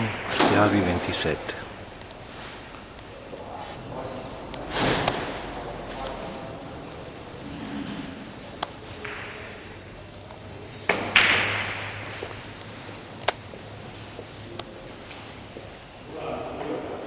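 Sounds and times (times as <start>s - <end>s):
billiard balls clicking: 7.9s - 13.6s.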